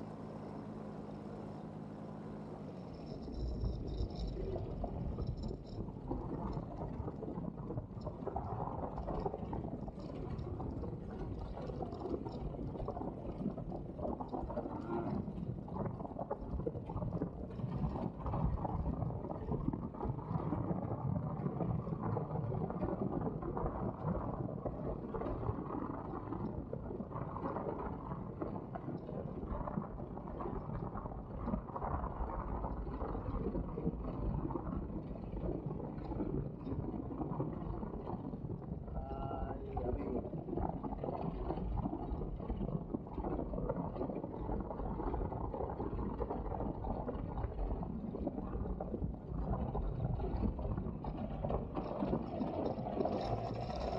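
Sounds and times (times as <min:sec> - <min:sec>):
paramotor engine running: 0:00.0 - 0:03.7.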